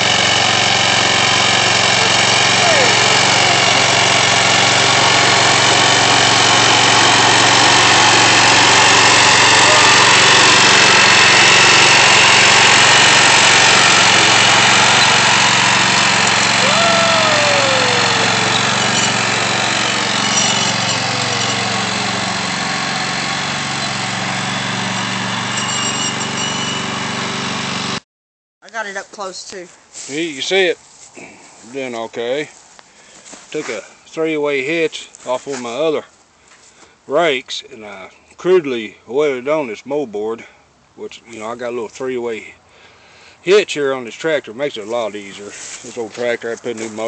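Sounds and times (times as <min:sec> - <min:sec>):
tractor engine running: 0:00.0 - 0:28.0.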